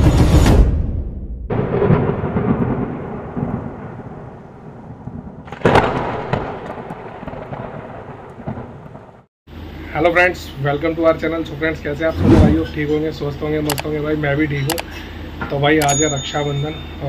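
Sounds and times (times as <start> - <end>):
sharp thunder crack: 1.5 - 9.3
thunder crash rumbling: 1.5 - 9.3.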